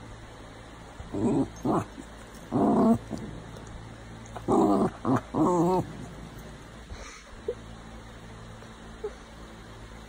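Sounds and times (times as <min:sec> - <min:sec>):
dog growling in play: 0:01.0 - 0:07.0.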